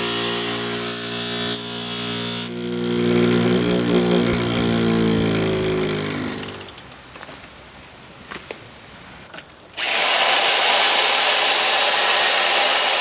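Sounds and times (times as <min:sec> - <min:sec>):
grinder motor humming: 0:00.0 - 0:06.9, 0:09.8 - 0:13.0
grinder wheel grinding steel: 0:00.0 - 0:07.0, 0:09.8 - 0:13.0.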